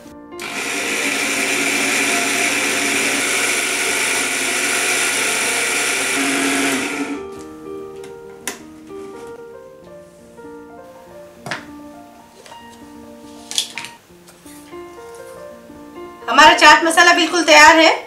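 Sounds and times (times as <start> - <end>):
mixer grinder grinding spices: 0.4 - 7.3.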